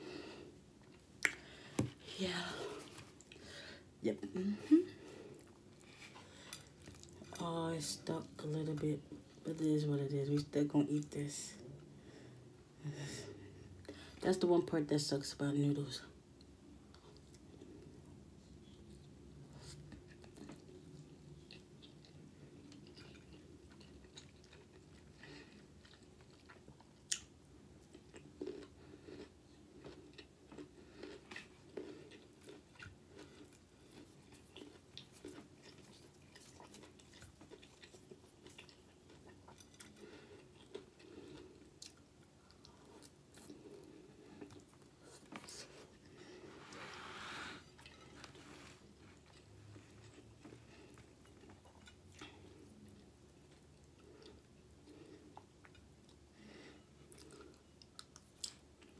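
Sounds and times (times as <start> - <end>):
close-up chewing: 5.0 - 9.6, 18.6 - 58.9.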